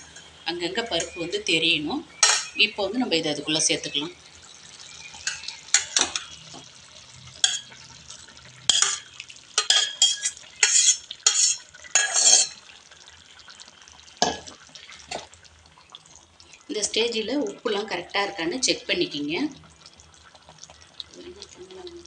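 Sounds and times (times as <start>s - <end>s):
metal spatula scraping a pan: 8.7s - 12.6s.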